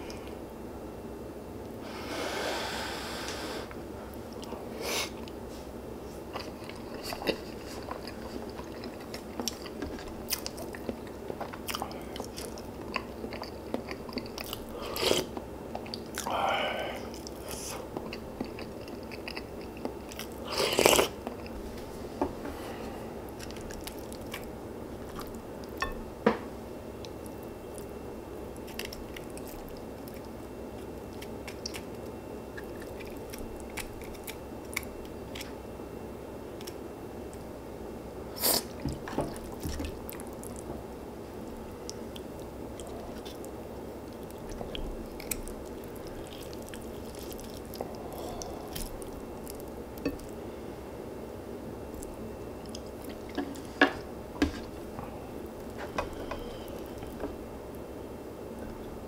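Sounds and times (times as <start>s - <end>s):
chewing and crunching: 6.0s - 16.4s, 17.0s - 21.6s, 22.8s - 26.0s, 27.0s - 35.7s, 38.4s - 50.4s, 51.8s - 57.8s.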